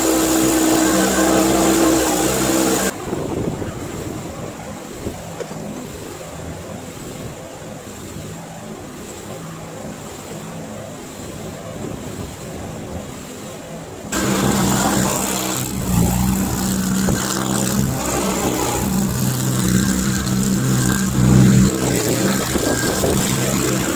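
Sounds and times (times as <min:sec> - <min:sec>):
pickup truck engine passing: 0:00.0 - 0:02.9
skid steer engine running: 0:00.0 - 0:02.9, 0:14.2 - 0:23.9.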